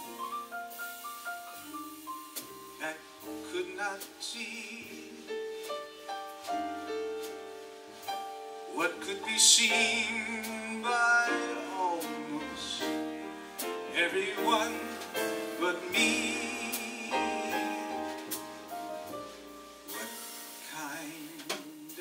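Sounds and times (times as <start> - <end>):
jazz trio playing: 0.0 - 22.0
man singing into a microphone: 2.8 - 5.3, 8.7 - 13.1, 13.8 - 18.4, 19.9 - 22.0.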